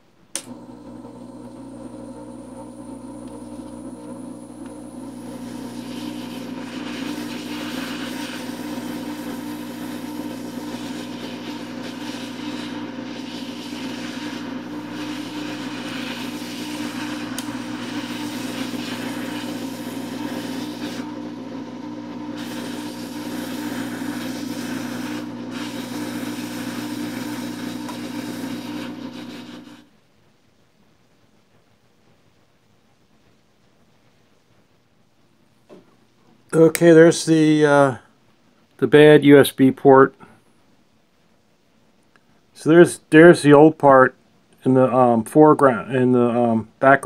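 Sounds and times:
hot air station blowing: 0.4 - 29.8.

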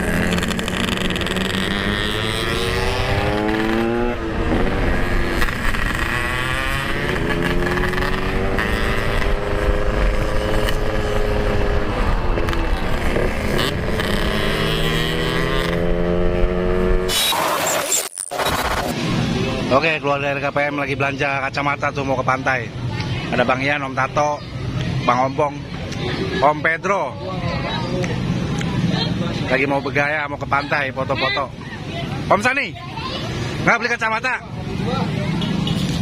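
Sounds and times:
motorcycle engine accelerating: 0.0 - 19.5.

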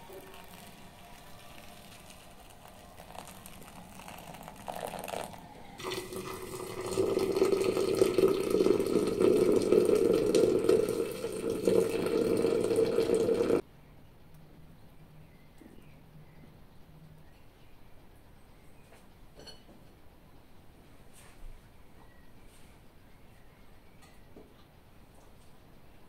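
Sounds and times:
water pouring from kettle: 0.0 - 13.6
water splashing into glass jar: 0.2 - 13.6.

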